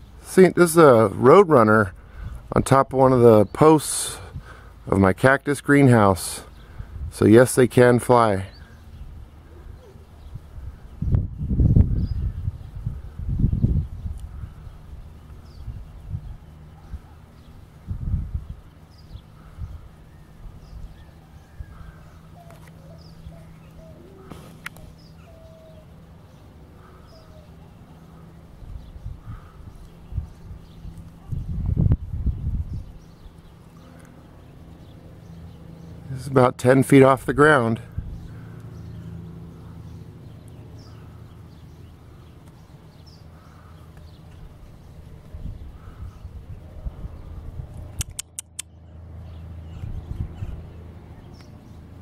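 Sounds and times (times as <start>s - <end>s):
birds chirping: 0.0s - 52.0s
low rumble on microphone: 8.4s - 36.2s, 37.8s - 48.0s, 48.7s - 52.0s
faint bird chirps: 18.9s - 31.6s
sharp click: 47.7s - 48.8s.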